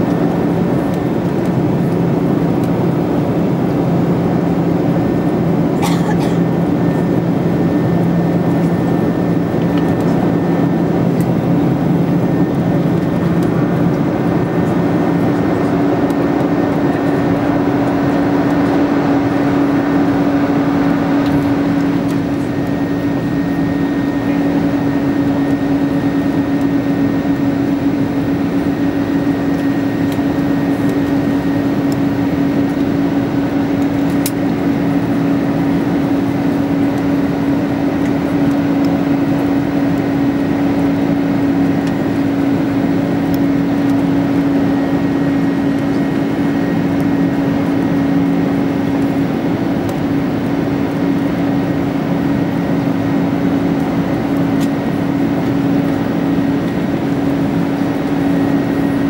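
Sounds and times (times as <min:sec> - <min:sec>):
jet engine roar in cabin: 0:00.0 - 0:59.0
low hum rising in pitch: 0:06.6 - 0:34.0.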